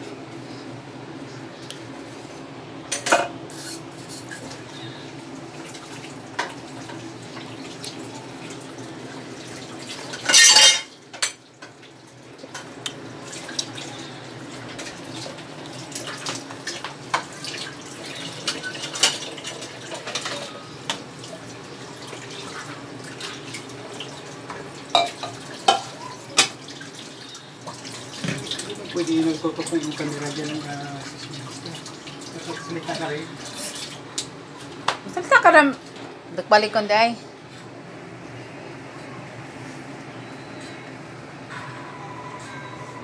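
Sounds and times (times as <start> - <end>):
dishes and cutlery clinking: 10.1 - 11.4, 18.4 - 20.6, 24.9 - 26.6.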